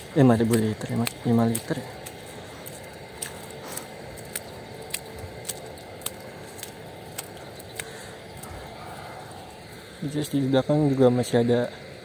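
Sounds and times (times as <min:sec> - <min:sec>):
footsteps on a footpath: 0:00.0 - 0:09.5.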